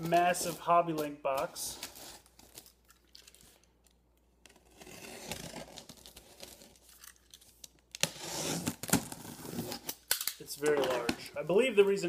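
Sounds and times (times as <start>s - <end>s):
blade slitting packing tape: 4.4s - 10.4s.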